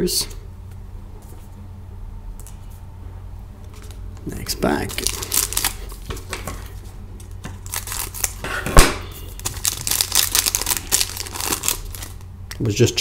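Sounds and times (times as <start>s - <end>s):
foil wrapper crinkling and tearing: 3.8s - 6.7s, 7.6s - 8.4s, 9.1s - 12.3s
sharp pop: 8.7s - 9.1s.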